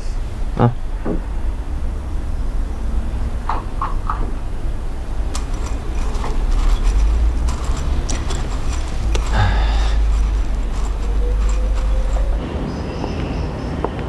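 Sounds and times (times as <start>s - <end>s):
low rumble: 0.0s - 12.4s
puppy crunching kibble: 3.4s - 12.4s.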